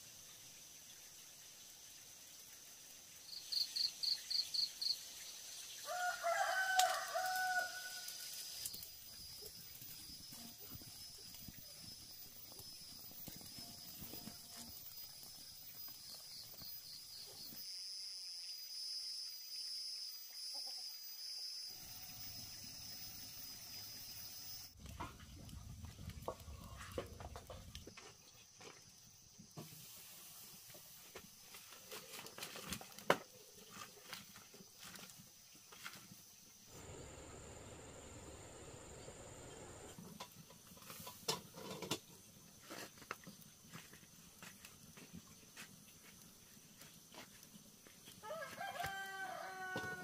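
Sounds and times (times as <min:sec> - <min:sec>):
rooster crowing: 0:05.8 - 0:08.2, 0:48.2 - 0:50.0.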